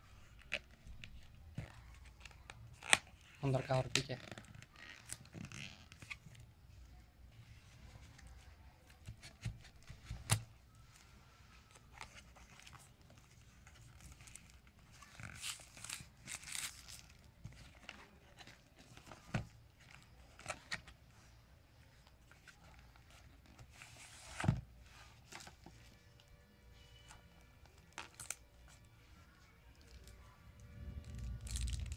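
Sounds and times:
plastic wrap crinkling and tearing: 11.7s - 19.2s, 27.7s - 28.8s, 29.6s - 31.9s.

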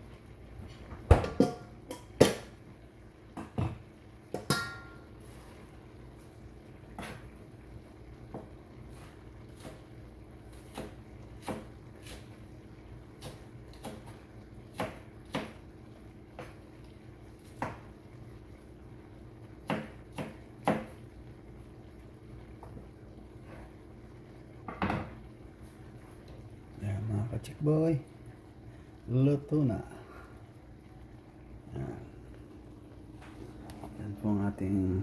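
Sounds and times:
butter sauce bubbling and popping: 0.0s - 34.0s
steady low hum: 20.5s - 35.0s.

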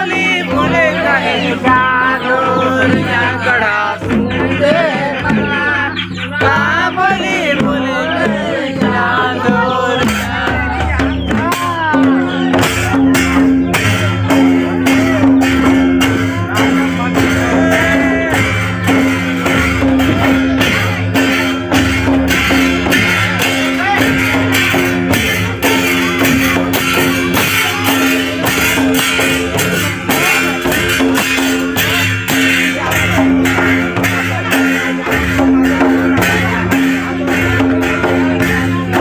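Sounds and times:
hand-beaten barrel drums: 0.0s - 39.0s.

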